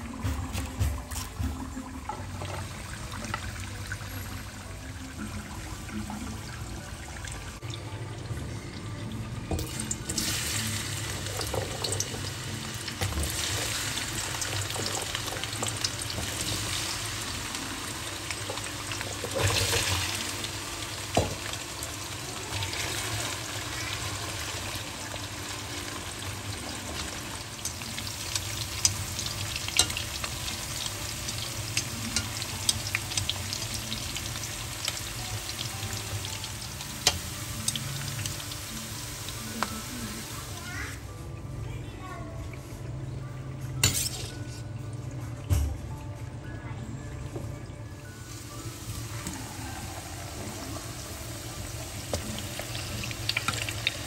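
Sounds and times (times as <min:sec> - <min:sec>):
food sizzling in a pan: 0:09.6 - 0:41.2, 0:48.1 - 0:54.0.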